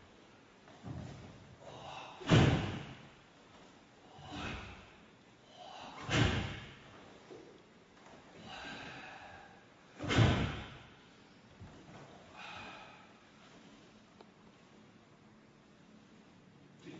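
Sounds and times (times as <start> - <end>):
soft breathing: 1.5 - 6.1, 6.7 - 15.0
strikes with forceful exhaled breath: 10.0 - 10.9.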